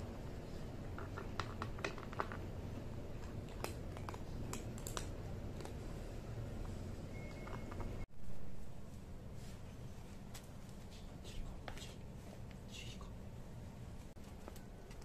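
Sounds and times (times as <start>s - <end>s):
kitten crunching dry kibble: 0.8s - 6.0s.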